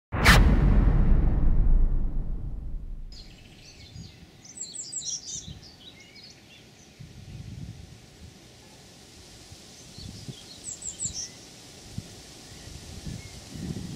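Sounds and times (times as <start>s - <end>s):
deep boom: 0.1s - 3.4s
faint low rumbles: 0.1s - 3.4s
songbirds chirping: 3.2s - 7.1s.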